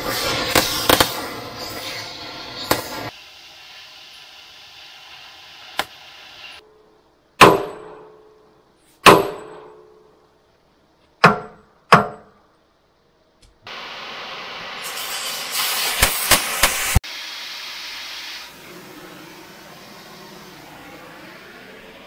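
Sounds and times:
cutting torch hissing: 0.0 - 6.6, 13.7 - 22.0
metal-on-metal blows ringing: 7.4 - 8.3, 9.0 - 10.0, 11.2 - 12.4.

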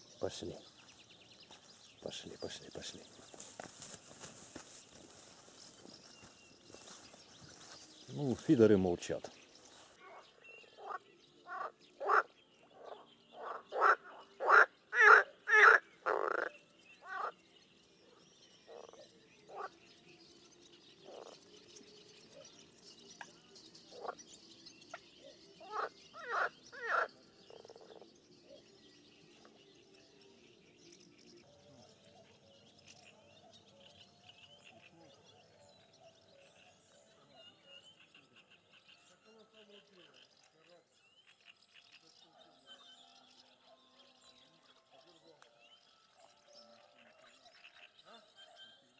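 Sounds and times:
frogs croaking: 0.0 - 18.1, 18.7 - 20.0, 21.0 - 21.6, 23.2 - 24.3, 24.9 - 28.6, 31.8 - 42.1, 46.2 - 48.9.

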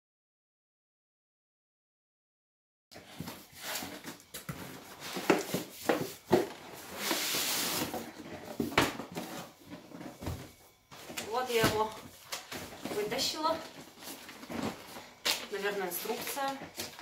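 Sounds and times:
packaging rustling: 12.0 - 17.0.

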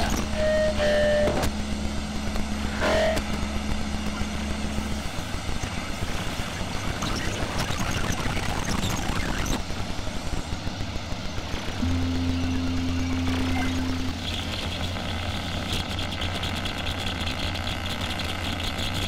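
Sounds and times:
electronic low drone: 0.0 - 19.0
short pitched electronic blip: 11.8 - 14.3.

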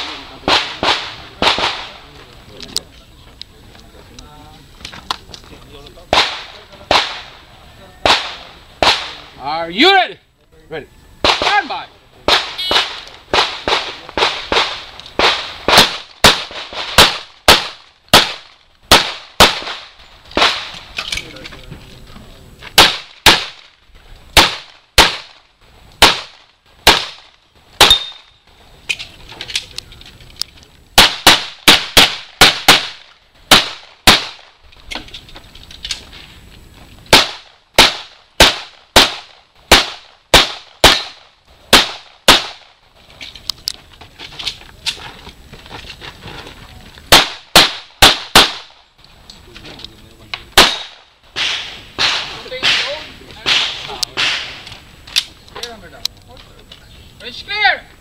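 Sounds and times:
pistol shots: 6.1 - 7.3, 12.3 - 20.8, 22.8 - 23.8, 24.4 - 25.4, 26.0 - 28.4, 31.0 - 34.6, 37.1 - 42.8, 47.1 - 48.8, 50.5 - 54.7.

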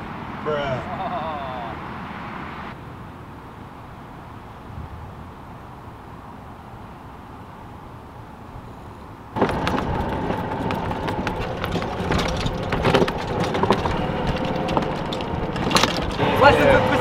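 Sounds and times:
golf cart rattling: 9.4 - 17.0.

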